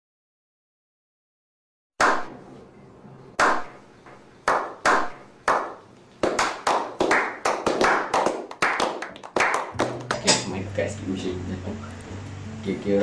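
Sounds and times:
men clapping: 0:04.5 - 0:10.5.

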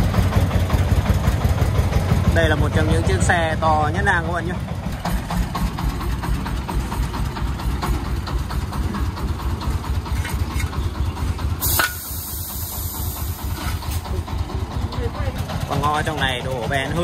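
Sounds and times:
diesel engine idling: 0:00.0 - 0:17.0
bricks scraping: 0:10.1 - 0:10.8
loud hiss: 0:11.6 - 0:14.1.

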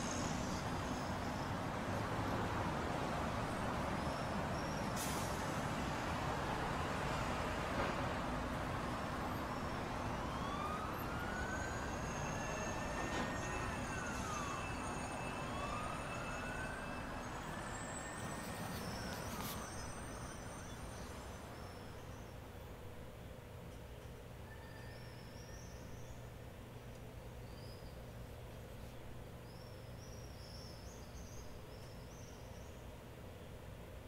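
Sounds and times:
city traffic noise: 0:00.0 - 0:34.0
emergency siren wailing: 0:08.9 - 0:20.6.

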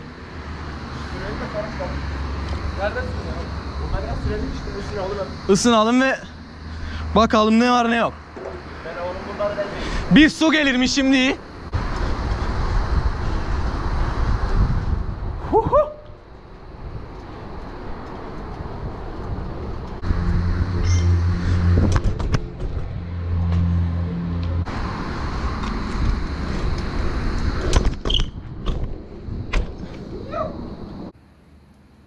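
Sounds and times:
bike tyres rolling on concrete: 0:10.7 - 0:15.4, 0:16.1 - 0:20.1, 0:24.7 - 0:31.0
wind rumble on microphone: 0:11.6 - 0:31.2.

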